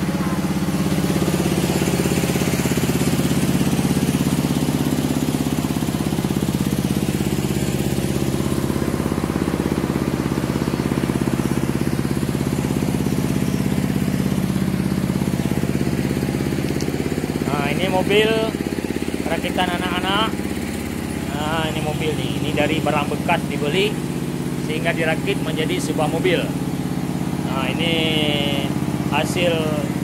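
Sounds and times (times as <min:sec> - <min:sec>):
diesel engine running steadily: 0:00.0 - 0:30.0.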